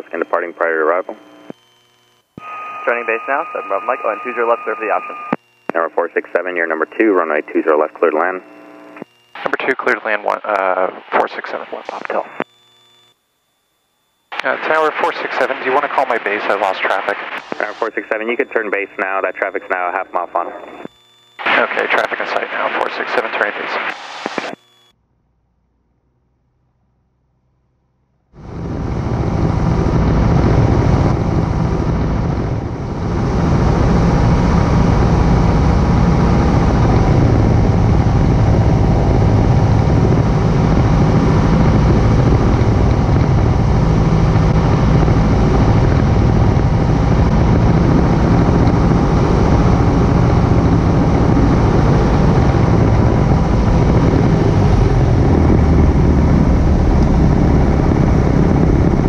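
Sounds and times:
propeller plane engine running: 28.4s - 59.0s.

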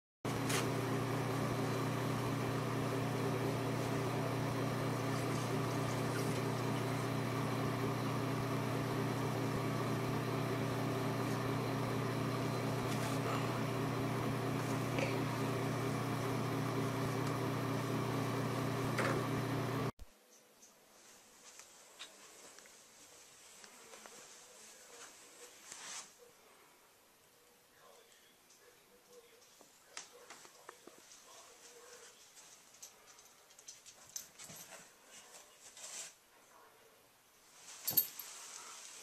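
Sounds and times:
exhaust fan motor hum: 0.3s - 19.9s.

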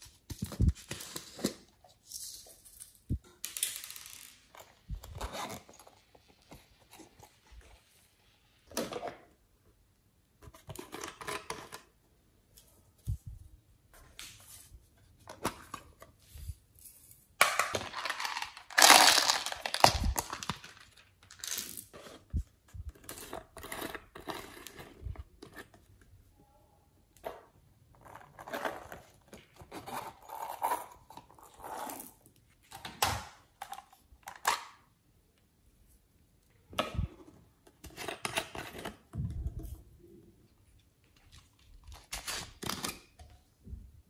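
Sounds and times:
plastic containers rattling: 17.4s - 21.5s.

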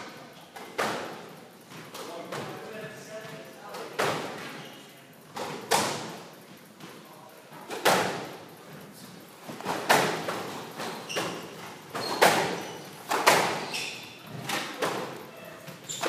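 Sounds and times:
squash ball hits echoing: 9.6s - 13.7s.

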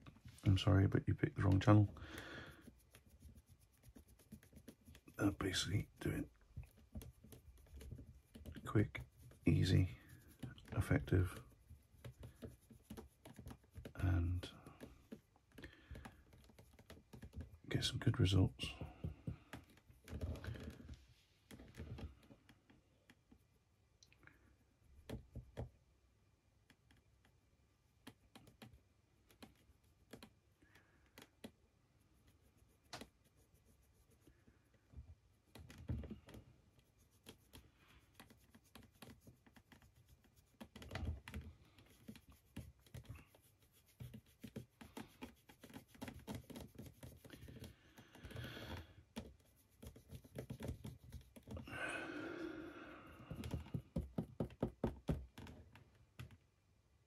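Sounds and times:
brush scraping on palette: 1.4s - 15.3s, 35.4s - 51.8s.

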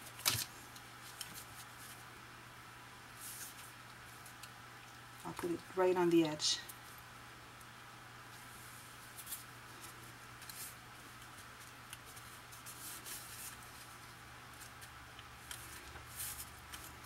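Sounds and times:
paper cards rustling: 0.0s - 2.0s, 9.0s - 17.0s.

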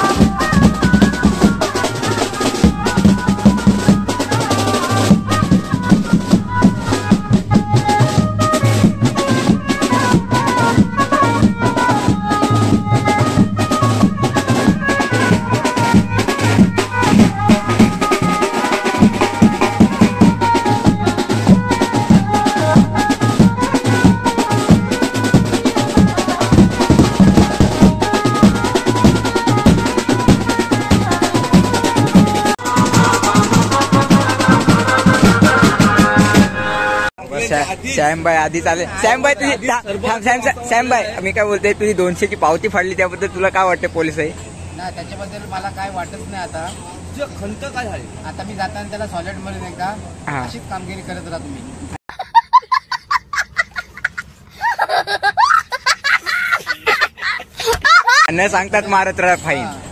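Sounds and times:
marching bass drums: 0.0s - 36.7s
melody over drumming: 0.0s - 37.1s.

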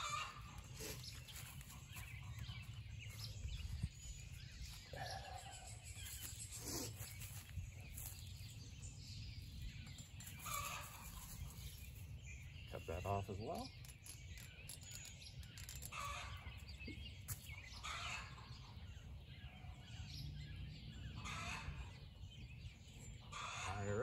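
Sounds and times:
hens clucking: 0.0s - 1.3s.

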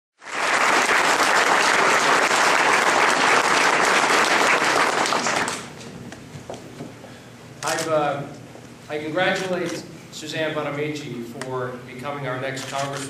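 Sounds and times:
crowd applauding: 0.2s - 5.7s.

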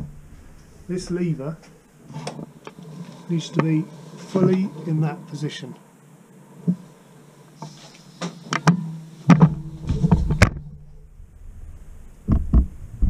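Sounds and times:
low rumble: 8.7s - 13.0s.

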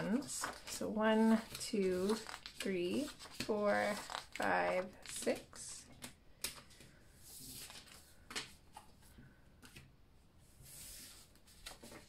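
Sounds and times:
paper bills rustling: 0.1s - 5.3s.

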